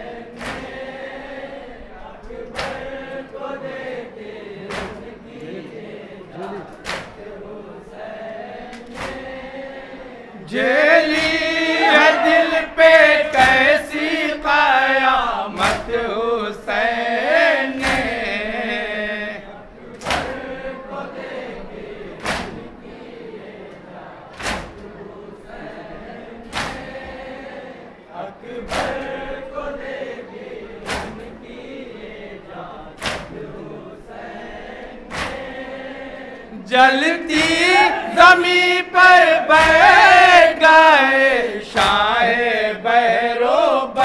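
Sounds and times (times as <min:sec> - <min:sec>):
men chanting: 0:00.0 - 0:44.0
hands slapping chests: 0:00.3 - 0:01.0, 0:02.4 - 0:03.2, 0:04.6 - 0:05.5, 0:06.4 - 0:07.4, 0:08.7 - 0:09.5, 0:11.1 - 0:13.8, 0:15.5 - 0:16.1, 0:17.7 - 0:18.4, 0:19.9 - 0:20.4, 0:22.2 - 0:22.7, 0:24.3 - 0:24.9, 0:26.5 - 0:27.1, 0:28.6 - 0:29.2, 0:30.8 - 0:31.4, 0:33.0 - 0:33.6, 0:35.0 - 0:35.8, 0:37.3 - 0:38.1, 0:39.5 - 0:40.3, 0:41.8 - 0:42.2.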